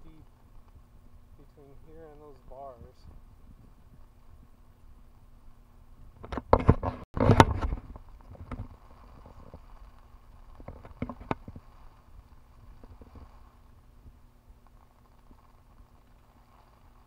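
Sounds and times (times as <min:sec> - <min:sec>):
faint steady hum: 0:00.0 - 0:17.0
camera handling knocks and rustles: 0:06.2 - 0:08.7.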